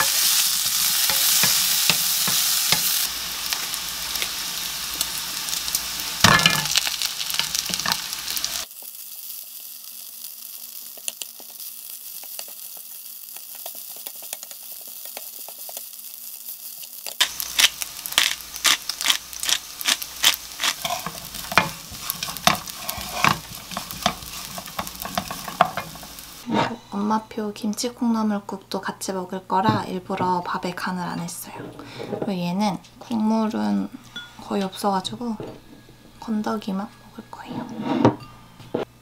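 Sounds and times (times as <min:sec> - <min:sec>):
spatula scraping and tapping pan: 0:00.0 - 0:03.0, 0:17.2 - 0:26.8
food sizzling in frying pan: 0:00.0 - 0:27.3.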